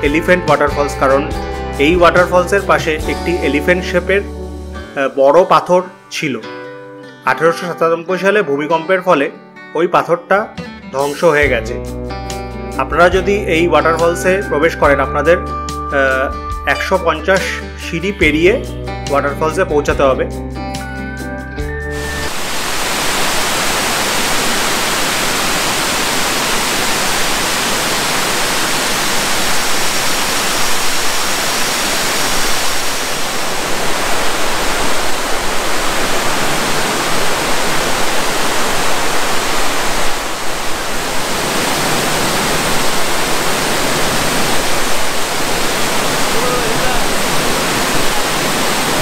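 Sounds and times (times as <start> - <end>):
waterfall rushing: 21.9 - 49.0.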